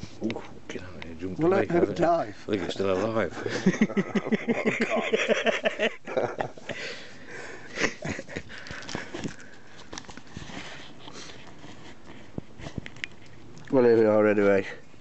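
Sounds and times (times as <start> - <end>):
man laughing: 1.6 - 6.8, 7.7 - 9.2
rustling: 8.1 - 14.7.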